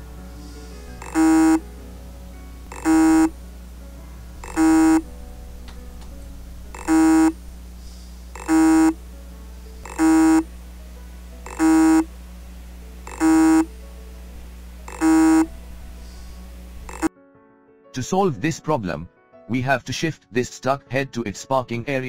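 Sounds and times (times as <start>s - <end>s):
steady low hum: 0.0s - 17.1s
hard disk buzzing pulses: 0.9s - 1.8s, 2.6s - 3.7s, 4.4s - 17.1s.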